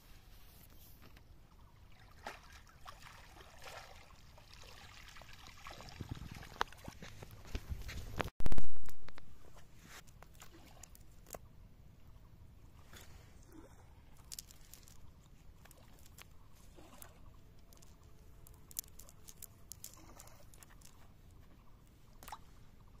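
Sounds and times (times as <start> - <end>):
fishing net clicking and rustling: 14.1 - 21.2.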